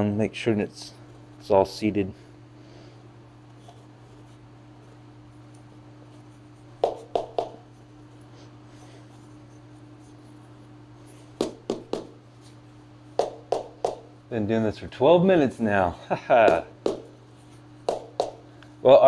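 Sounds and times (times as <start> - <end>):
steady low hum: 0.0 - 19.0
knocks: 6.8 - 7.6, 11.4 - 12.2, 13.2 - 14.1, 16.5 - 17.1, 17.9 - 18.4.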